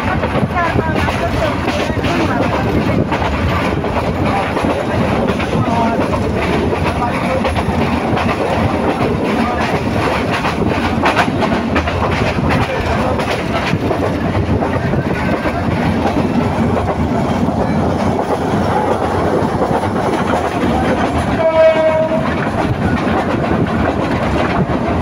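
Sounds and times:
train wheels rumbling on track: 0.0 - 25.0
short train horn: 21.4 - 22.3.

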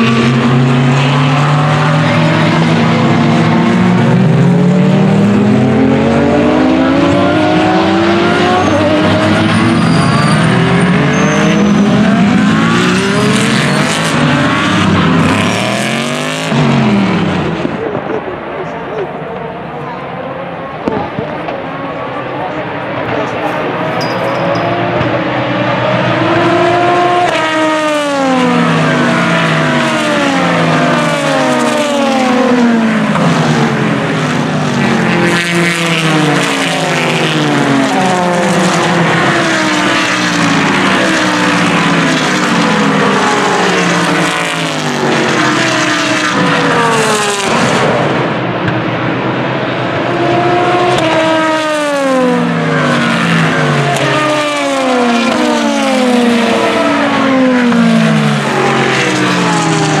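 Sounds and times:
racing cars passing at speed: 0.0 - 60.0.

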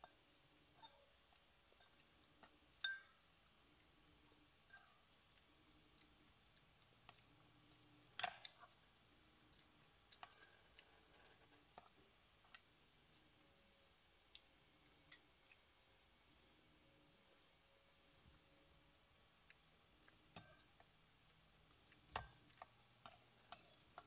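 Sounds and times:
cutlery clinking against a bowl: 0.8 - 3.2, 8.2 - 8.8, 10.2 - 12.6, 20.0 - 20.9, 21.8 - 24.0.

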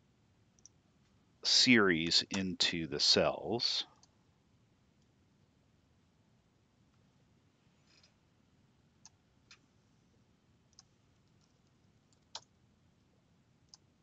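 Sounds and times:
faint mouse clicks: 0.6 - 1.2, 10.7 - 12.6, 13.6 - 13.9.

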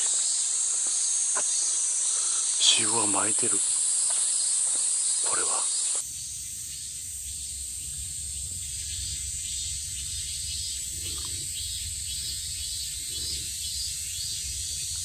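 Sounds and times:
insects buzzing: 0.0 - 15.0
low steady rumble: 6.0 - 15.0.

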